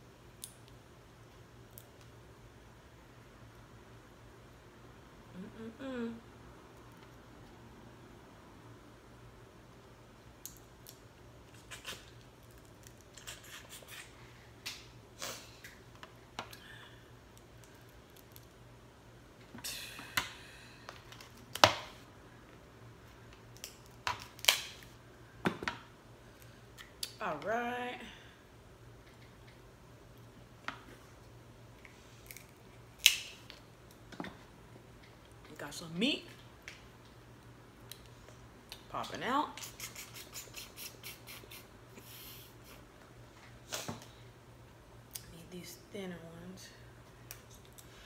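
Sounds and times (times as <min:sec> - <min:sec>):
crab shell cracking: 0:32.2 - 0:33.9.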